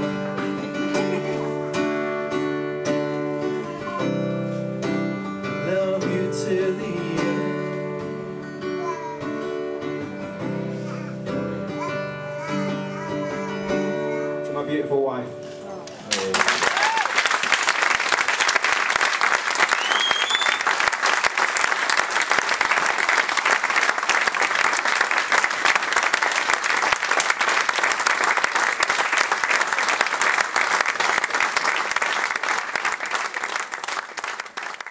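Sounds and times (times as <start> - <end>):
crowd applauding: 16.1 - 34.9.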